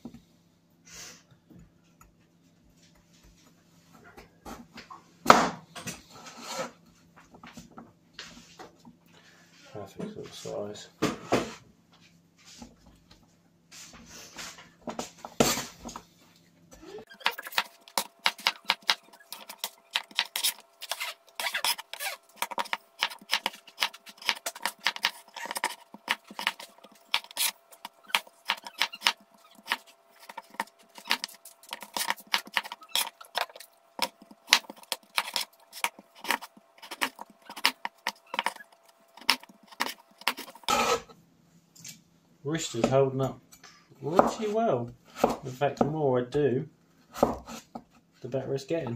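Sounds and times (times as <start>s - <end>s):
knife chopping on plastic board: 17.1s - 38.6s, 39.2s - 41.0s.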